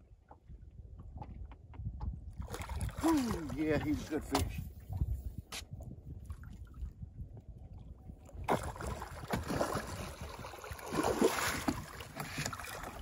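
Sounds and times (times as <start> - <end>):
fish thrashing and splashing: 8.4 - 13.0.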